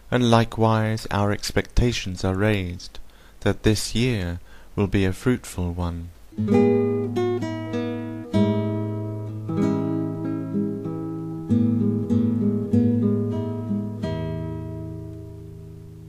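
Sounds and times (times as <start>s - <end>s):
acoustic guitar: 6.3s - 16.0s.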